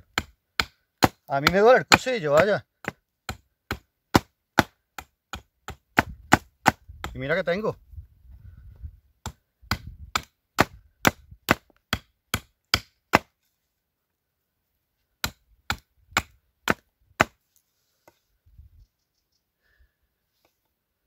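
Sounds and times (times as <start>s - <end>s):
axe chopping wood: 0.0s - 7.3s, 9.2s - 13.4s, 15.2s - 17.4s.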